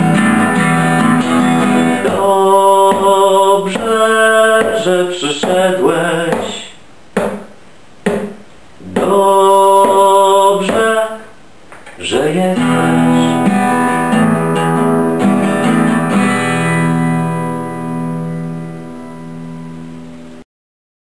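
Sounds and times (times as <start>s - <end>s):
acoustic guitar strumming: 0.0s - 11.2s, 12.0s - 20.4s.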